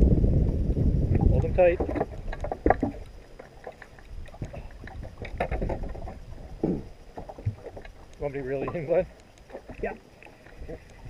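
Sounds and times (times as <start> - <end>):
low rumble: 0.0 - 3.2
wind on microphone: 0.0 - 8.1, 8.7 - 11.0
water lapping against boat hull: 0.5 - 11.0.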